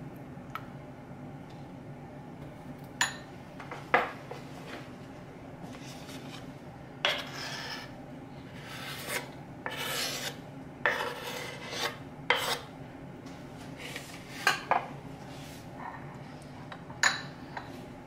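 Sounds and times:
knife scraping cutting board: 7.1 - 12.7.

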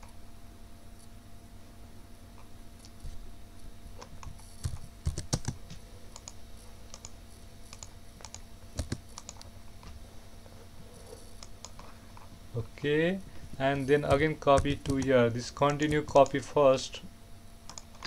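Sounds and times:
keyboard keystrokes: 4.2 - 5.6, 6.2 - 9.5, 14.1 - 16.4
mouse clicks: 6.1 - 9.5, 17.7 - 18.0.

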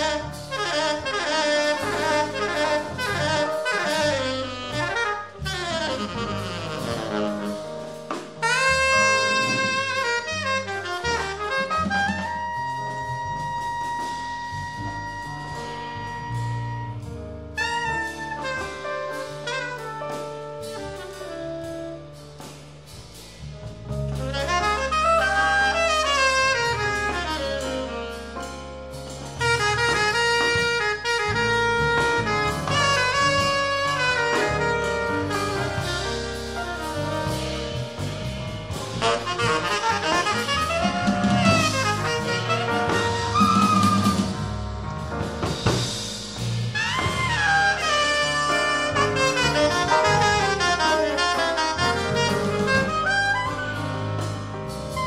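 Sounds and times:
tenor saxophone soloing: 0.0 - 22.5, 23.9 - 55.0
jazz rhythm section and drums: 0.0 - 55.0.

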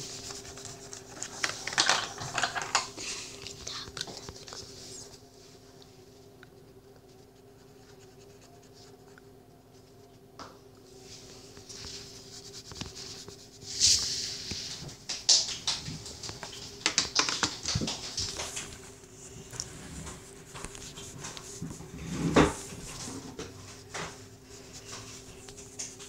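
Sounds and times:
hands rustling paper: 0.0 - 5.2, 11.1 - 26.0.

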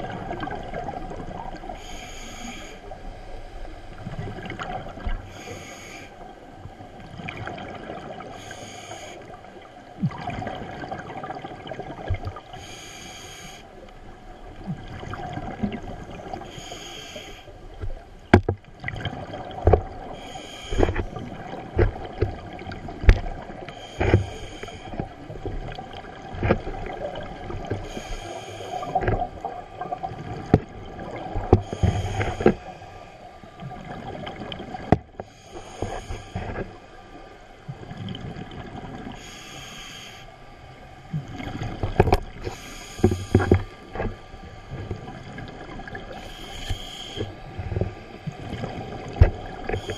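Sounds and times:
underwater rumble: 0.0 - 49.9
scuba regulator breathing: 1.7 - 3.6, 5.2 - 6.3, 8.2 - 9.4, 12.5 - 13.9, 16.4 - 17.8, 20.1 - 22.3, 23.6 - 25.3, 27.6 - 29.9, 31.4 - 33.6, 35.1 - 37.1, 39.1 - 40.7, 41.9 - 44.7, 45.9 - 48.2, 49.2 - 49.9.

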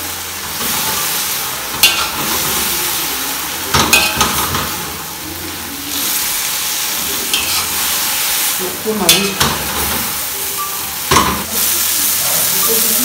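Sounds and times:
greens sizzling in a wok: 0.0 - 13.0
metal spoon scraping a wok: 7.3 - 7.9.

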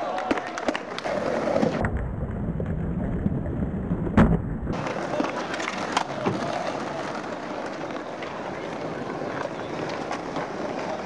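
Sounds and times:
skateboards clacking: 0.0 - 1.9, 4.1 - 11.0
skateboard wheels rolling on concrete: 0.0 - 11.0.

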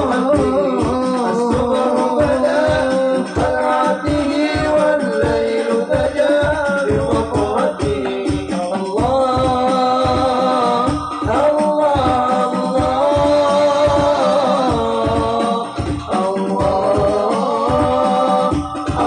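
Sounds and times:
frame drums beating: 0.0 - 19.0
men singing through microphones: 0.0 - 19.0.

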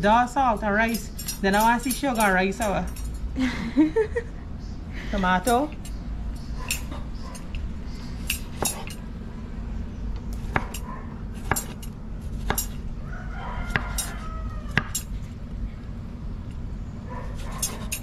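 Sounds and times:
rooster crowing: 12.9 - 15.2.

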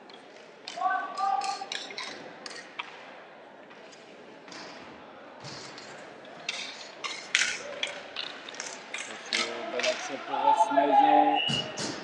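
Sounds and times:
hockey sticks clacking: 0.1 - 3.1, 3.7 - 10.2.

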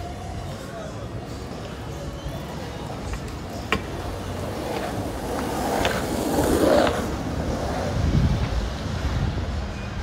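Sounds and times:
rolling rush of wheels: 0.0 - 10.0.

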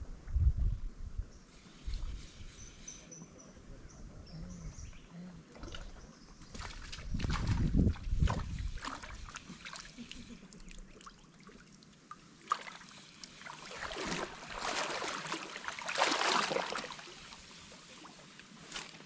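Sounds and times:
water sloshing around wading legs: 5.5 - 19.0.

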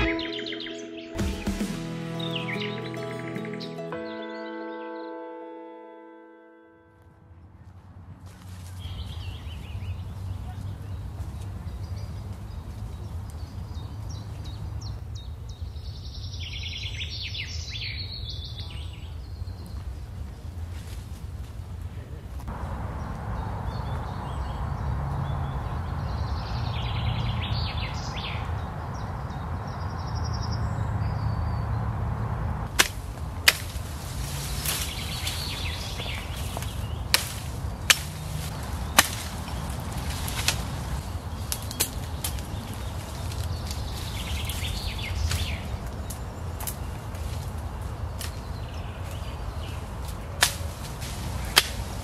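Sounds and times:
outdoor background noise: 7.0 - 52.0
hatchet chopping wood: 32.7 - 33.8, 37.1 - 38.3, 39.0 - 39.5.

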